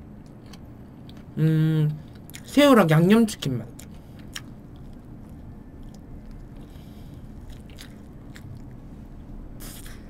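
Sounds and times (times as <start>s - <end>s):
person chewing toast: 3.8s - 8.9s.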